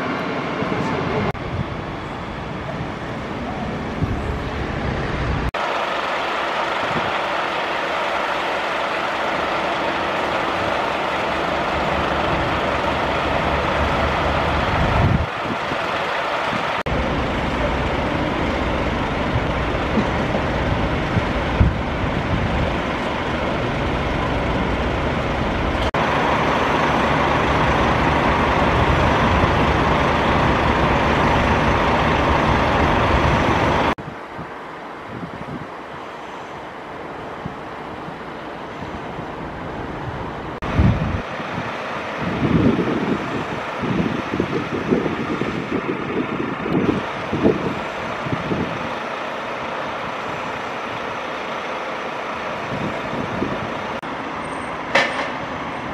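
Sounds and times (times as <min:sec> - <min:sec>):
diesel engines idling: 0:00.0 - 0:55.9.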